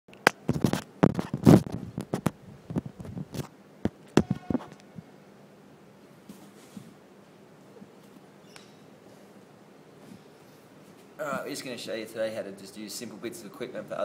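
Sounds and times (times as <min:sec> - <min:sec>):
brief squeak: 0:04.2 - 0:04.7, 0:08.4 - 0:08.8.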